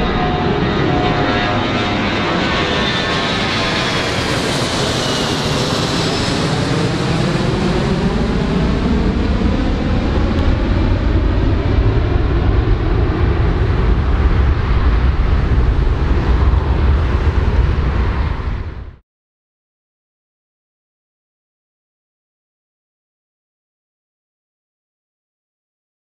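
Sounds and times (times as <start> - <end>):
deep rumble: 0.0 - 19.0
jet engines whining: 0.0 - 19.0
steady rushing noise: 4.2 - 19.0.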